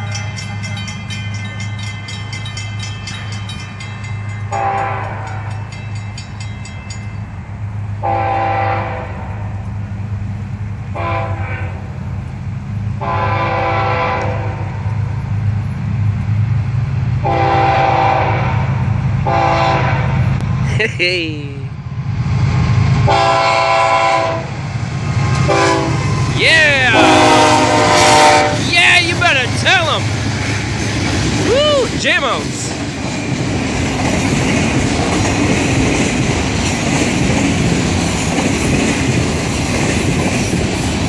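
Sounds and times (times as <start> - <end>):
crossing bell ringing: 0.0 - 7.8, 26.0 - 30.2
locomotive air horn blasts: 4.5 - 5.5, 8.0 - 9.4, 10.9 - 11.8, 13.0 - 14.8, 17.2 - 20.1, 23.1 - 24.5, 25.5 - 26.2, 26.8 - 28.6.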